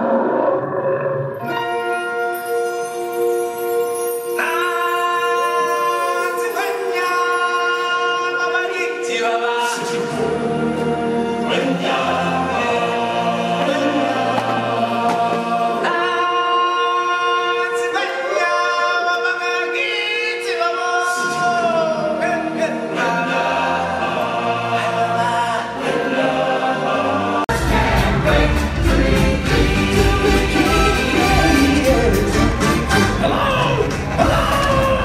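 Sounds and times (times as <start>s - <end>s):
choir singing in harmony: 1.3s - 35.0s
full music with drums: 27.5s - 35.0s.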